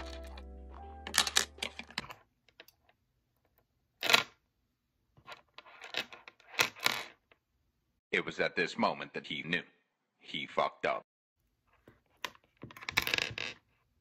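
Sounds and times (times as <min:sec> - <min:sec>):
background music: 0:00.0 - 0:02.1.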